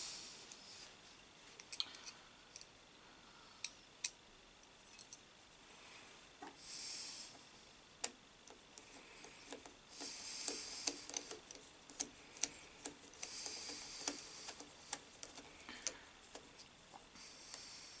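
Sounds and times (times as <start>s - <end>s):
screwdriver clicking and scraping metal: 4.9s - 5.2s, 8.5s - 16.7s.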